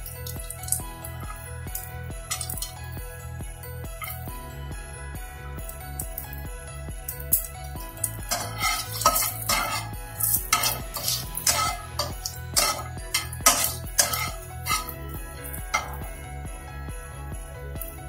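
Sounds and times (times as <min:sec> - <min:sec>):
background music: 0:00.0 - 0:18.0
spatula scraping cooking pan: 0:08.3 - 0:14.9.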